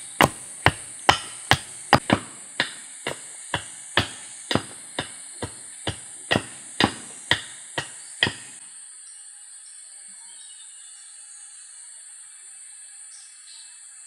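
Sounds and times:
high-pitched background hiss: 0.0 - 14.0
wooden mallet striking machete blade: 0.2 - 8.6.

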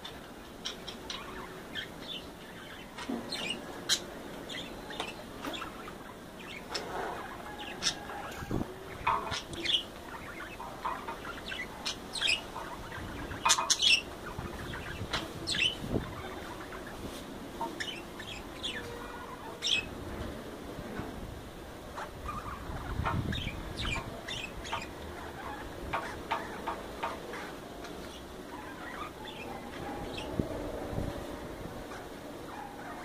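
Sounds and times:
budgerigars chirping and chattering: 0.0 - 20.0, 21.9 - 30.4, 31.9 - 33.0.

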